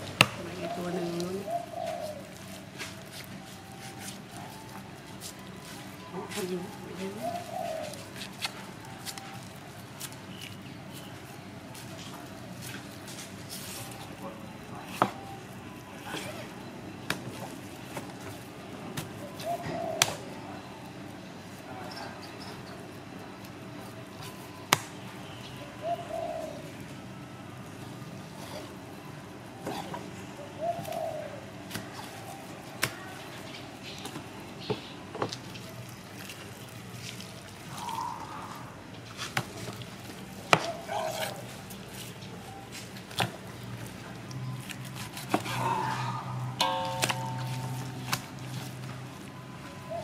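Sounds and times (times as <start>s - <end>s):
soft bird calls: 0.4s - 2.3s, 6.4s - 8.1s, 29.6s - 35.8s, 37.1s - 39.2s
low steady hum: 41.4s - 50.0s.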